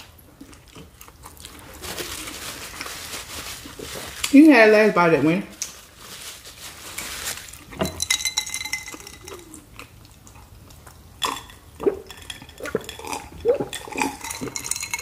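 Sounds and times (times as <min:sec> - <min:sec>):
chewing and mouth smacks: 0:00.4 - 0:01.7, 0:09.3 - 0:14.6.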